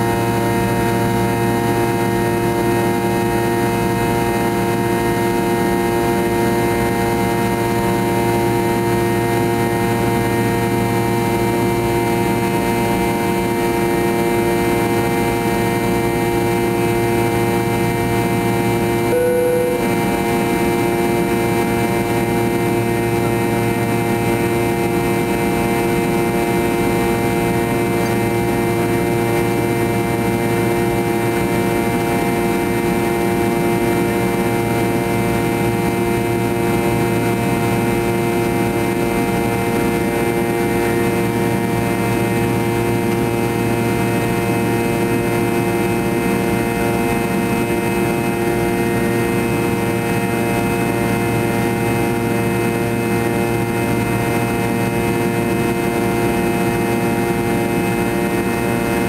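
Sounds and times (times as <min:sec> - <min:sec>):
jet engine drone in cabin: 0:00.0 - 0:59.0.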